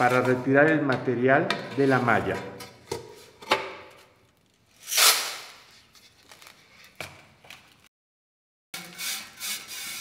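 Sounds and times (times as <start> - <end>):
metal sieves scraping: 0.0 - 0.6.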